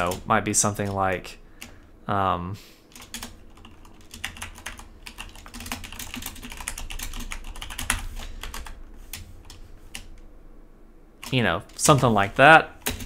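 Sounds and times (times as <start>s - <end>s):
computer keyboard typing: 0.0s - 1.0s, 2.9s - 10.2s, 12.8s - 13.0s.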